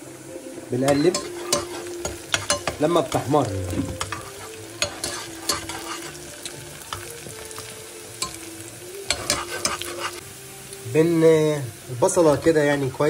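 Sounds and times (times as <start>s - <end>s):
onion sizzling in a pan: 0.0s - 13.0s
metal spatula scraping a pan: 0.9s - 6.3s, 9.1s - 10.2s.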